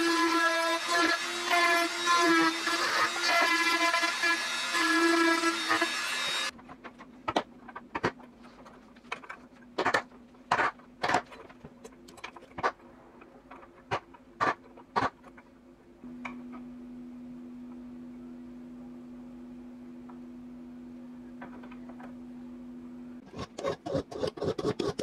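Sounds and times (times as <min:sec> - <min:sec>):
rotary tool whining on metal: 0:00.0 - 0:06.5.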